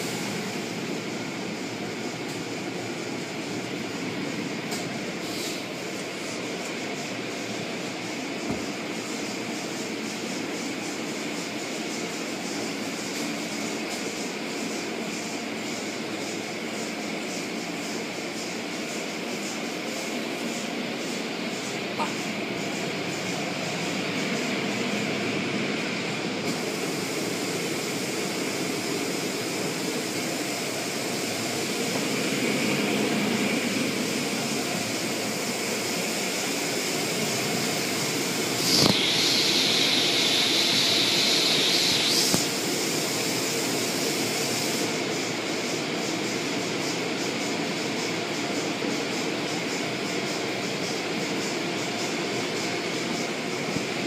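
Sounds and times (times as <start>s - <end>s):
high hiss: 0.0s - 54.0s
click: 42.2s - 42.5s.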